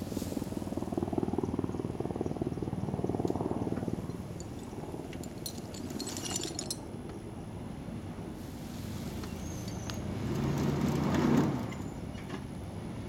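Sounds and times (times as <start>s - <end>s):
vehicle engine straining: 9.1s - 12.4s.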